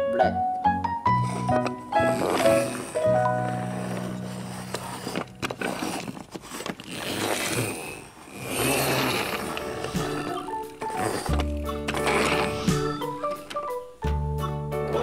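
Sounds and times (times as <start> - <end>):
background music: 0.0 - 6.0, 8.5 - 15.0
plastic toy wheels rolling on floor: 1.2 - 13.7.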